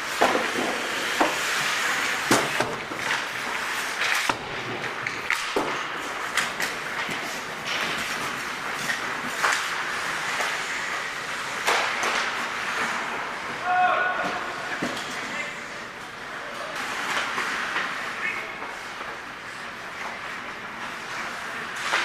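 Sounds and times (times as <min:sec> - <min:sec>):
skate blades scraping on ice: 0:00.0 - 0:13.6
hockey sticks and puck clacking: 0:00.0 - 0:22.0.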